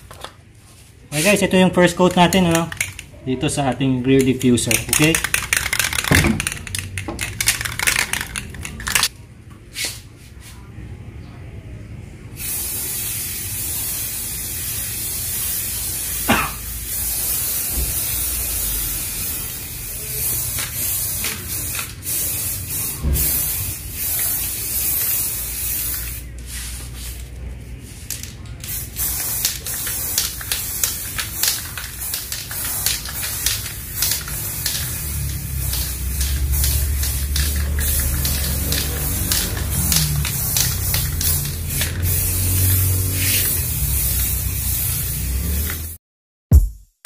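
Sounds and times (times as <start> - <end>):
aerosol spray can hissing: 28.6 - 46.0.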